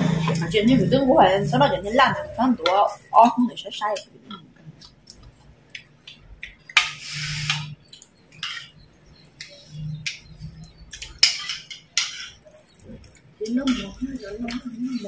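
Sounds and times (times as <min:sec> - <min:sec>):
spoons scraping ceramic bowls: 0:11.0 - 0:12.6, 0:13.5 - 0:15.0.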